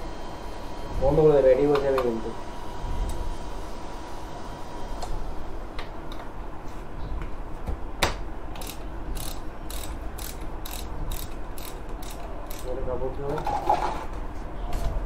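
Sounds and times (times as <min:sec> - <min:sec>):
ratchet wrench clicking: 0:08.6 - 0:12.8.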